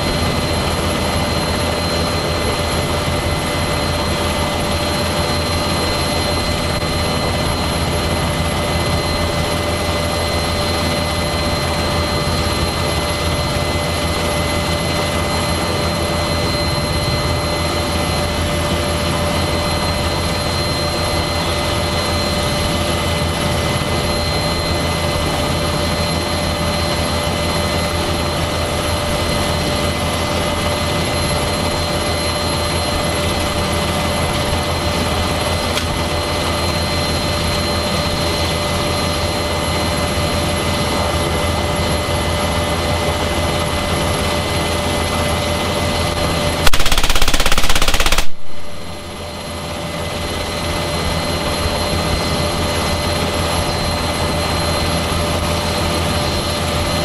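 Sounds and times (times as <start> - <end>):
helicopter turbines and rotor whine: 0.0 - 57.0
heavy machine gun burst: 46.7 - 48.5.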